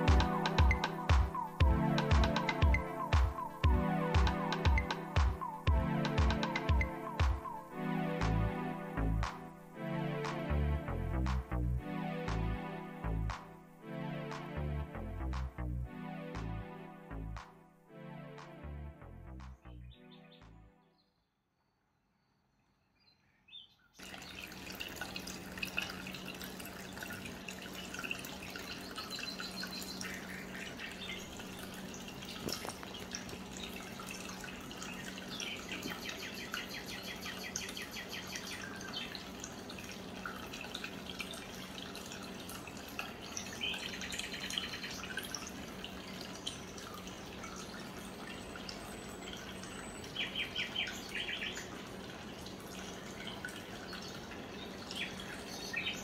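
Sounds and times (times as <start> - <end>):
low pump hum: 0.0 - 19.9, 24.0 - 56.0
water trickling and dripping: 0.0 - 20.7, 24.0 - 56.0
birds chirping: 27.7 - 40.0, 46.4 - 52.0, 52.8 - 56.0.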